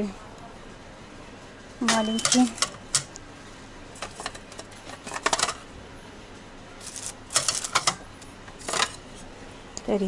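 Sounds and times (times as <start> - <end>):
plastic plates clattering: 3.9 - 5.7, 6.8 - 9.1.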